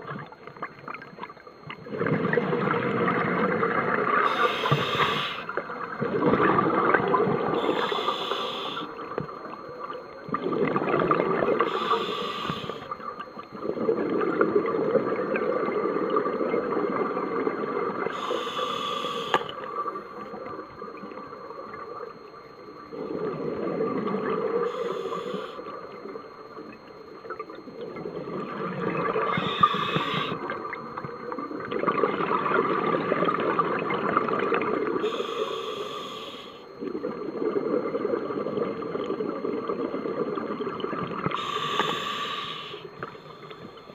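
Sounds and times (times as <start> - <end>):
scuba regulator breathing hiss: 4.3 - 5.5, 7.6 - 8.9, 11.7 - 12.8, 18.1 - 19.5, 24.7 - 25.6, 29.3 - 30.4, 35.0 - 36.6, 41.4 - 42.9.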